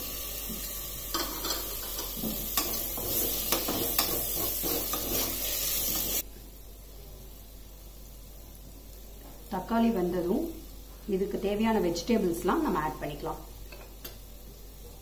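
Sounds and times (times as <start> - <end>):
tomatoes sizzling in hot oil: 0.0 - 6.7, 7.4 - 15.0
spoon scraping and knocking pot: 0.5 - 6.2.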